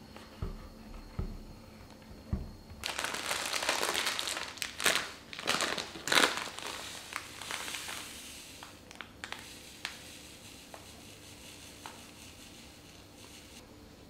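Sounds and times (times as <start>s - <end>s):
plastic packet crinkling: 2.8s - 10.0s
sugar pouring into a bowl: 6.4s - 13.6s.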